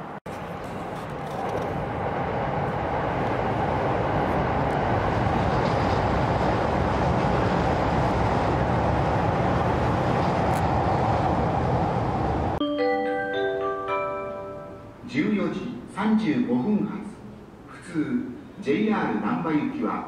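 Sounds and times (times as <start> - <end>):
train wheels rumbling on rails: 0.0 - 12.6.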